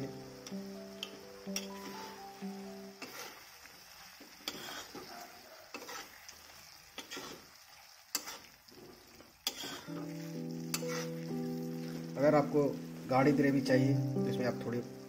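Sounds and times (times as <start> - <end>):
background music: 0.0 - 3.2, 9.9 - 15.0
gravy sizzling: 0.0 - 15.0
spatula scraping metal pan: 3.0 - 3.4, 4.4 - 5.1, 5.7 - 6.2, 7.0 - 7.5, 8.1 - 8.6, 9.4 - 10.1, 10.7 - 11.3.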